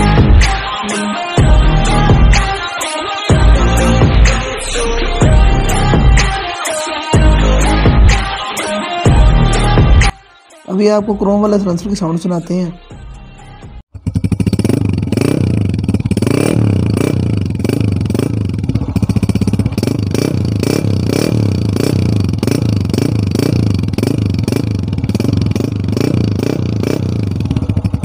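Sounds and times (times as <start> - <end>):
motorcycle engine running: 13.9 - 28.0.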